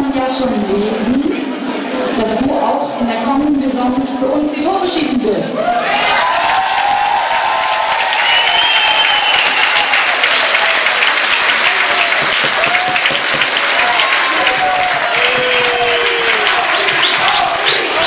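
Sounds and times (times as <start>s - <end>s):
shouts from crowd: 5.5s - 18.0s
crowd applauding and cheering: 5.6s - 18.0s.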